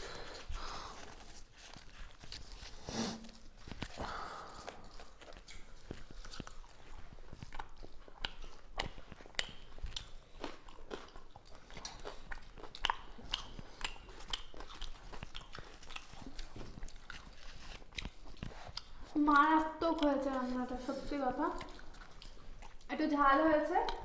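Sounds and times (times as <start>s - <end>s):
people chewing food: 0.0s - 24.0s.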